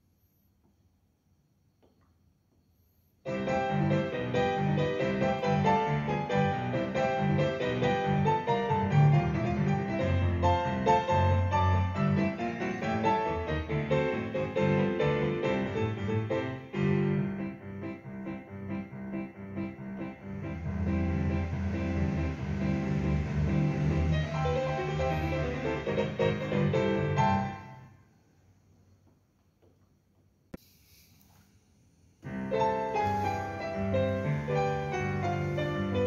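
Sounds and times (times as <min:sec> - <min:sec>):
piano chords over bass notes: 0:03.3 - 0:28.0, 0:32.2 - 0:36.0.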